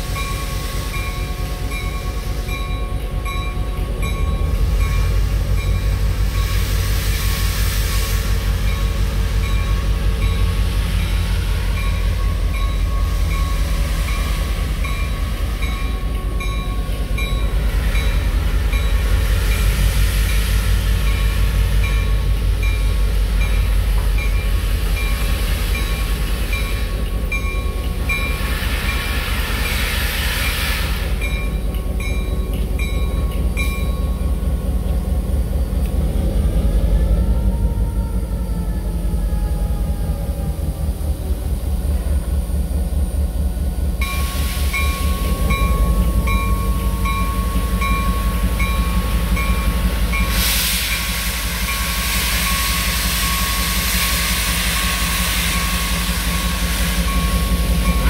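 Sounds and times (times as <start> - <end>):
steam hissing: 4.1 - 34.1, 44.0 - 58.0
diesel engine throbbing: 30.8 - 51.7.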